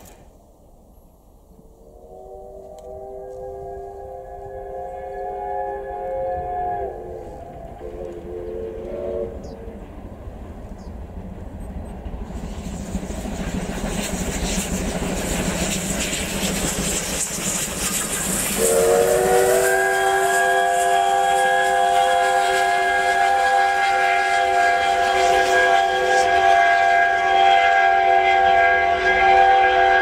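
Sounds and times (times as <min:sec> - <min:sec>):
steam train approaching: 0:00.0 - 0:30.0
steam whistle: 0:01.8 - 0:09.7, 0:18.3 - 0:30.0.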